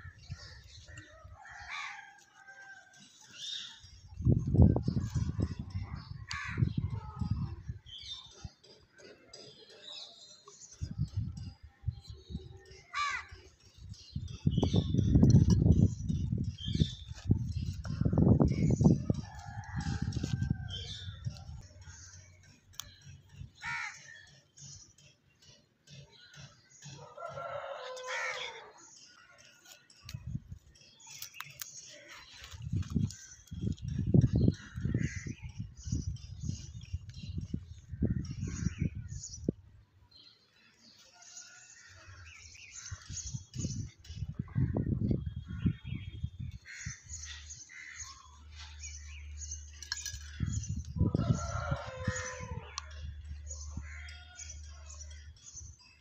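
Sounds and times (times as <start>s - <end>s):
birds calling: 0.0s - 6.8s, 12.0s - 39.6s, 40.3s - 56.0s
rooster crowing: 51.1s - 52.7s.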